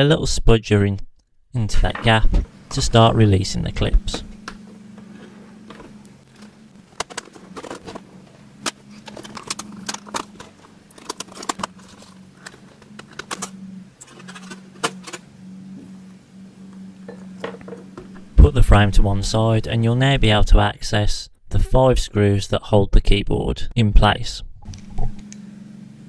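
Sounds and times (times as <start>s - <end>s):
faint steady hum: 0.0s - 26.0s
plastic clips snapping: 8.6s - 15.2s.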